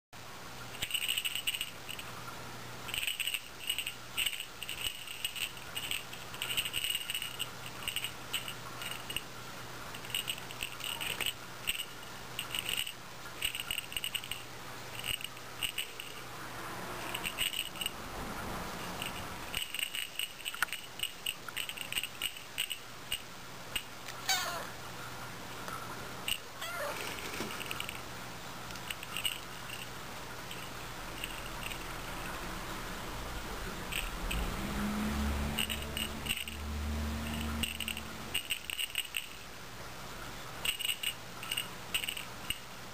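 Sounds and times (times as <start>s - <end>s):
small bell jingling: 0.8s - 2.1s, 2.9s - 9.3s, 33.8s - 39.4s
cat meowing: 24.2s - 24.7s, 26.6s - 27.0s.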